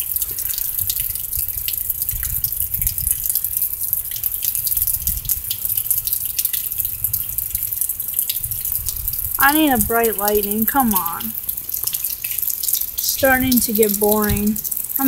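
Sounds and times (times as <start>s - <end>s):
raindrops ticking: 0.0s - 15.0s.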